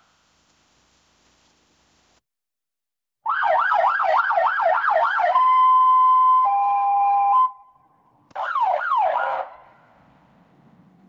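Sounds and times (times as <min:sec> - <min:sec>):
police siren yelping: 0:03.2 - 0:07.7, 0:08.4 - 0:09.6.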